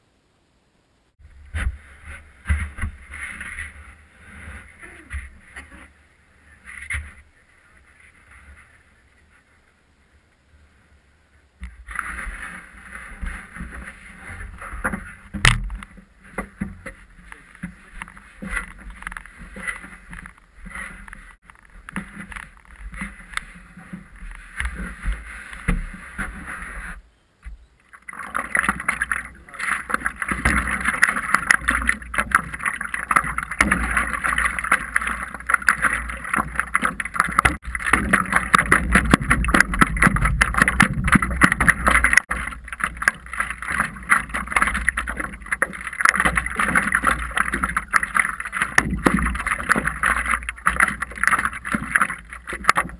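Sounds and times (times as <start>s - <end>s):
knocks and rustling of handling: 11.6s - 52.9s
water splashing against board: 11.6s - 52.9s.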